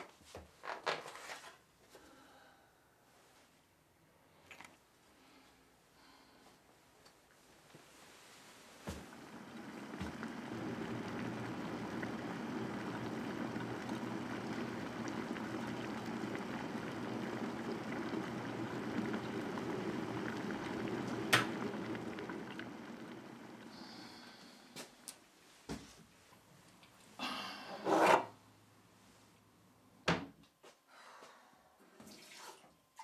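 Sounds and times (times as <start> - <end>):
electric kettle boiling: 8.3 - 25.1.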